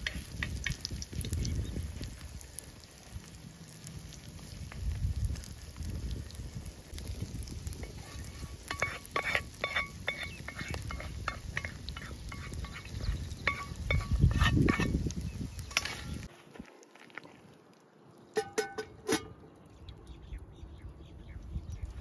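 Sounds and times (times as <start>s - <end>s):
egg mixture frying in oil: 0.0s - 16.3s.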